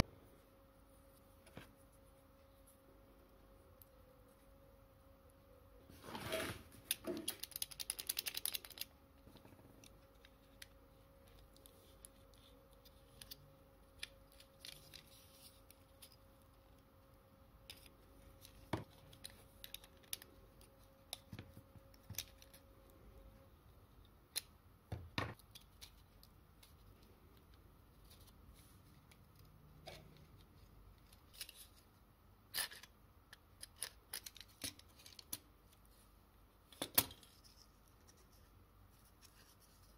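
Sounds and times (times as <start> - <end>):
tin toy parts clicking: 6.9 - 8.9, 32.5 - 35.4.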